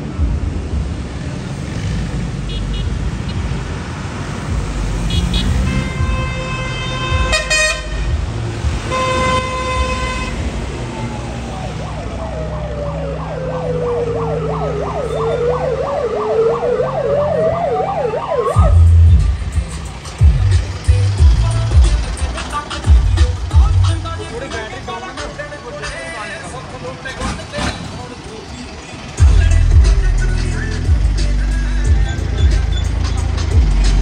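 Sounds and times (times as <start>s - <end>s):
road traffic engine rumble: 0.0s - 34.0s
car horn honks: 2.5s - 3.4s, 5.0s - 8.2s, 8.8s - 10.6s
warbling siren: 10.8s - 19.2s.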